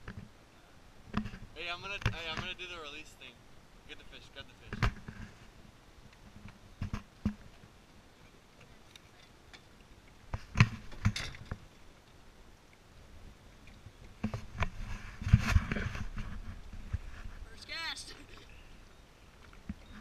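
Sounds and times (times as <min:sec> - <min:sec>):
knocks and clicks of gear in boat: 0:10.3 - 0:11.6.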